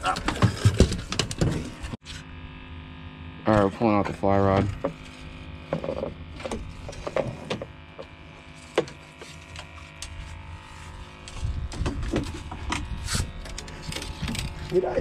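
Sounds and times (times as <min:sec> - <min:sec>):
low microphone rumble: 0:10.3 - 0:15.0.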